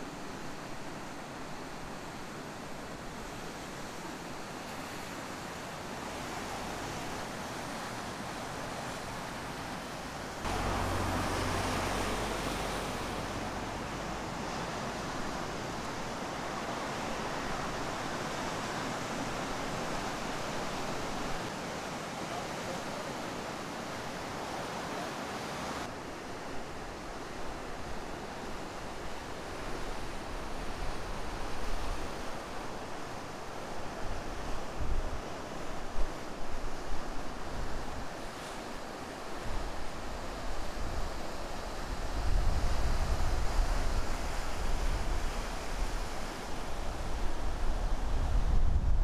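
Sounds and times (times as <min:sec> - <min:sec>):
ocean surf breaking: 0:05.6 - 0:26.0
wind buffeting microphone: 0:41.8 - 0:49.0.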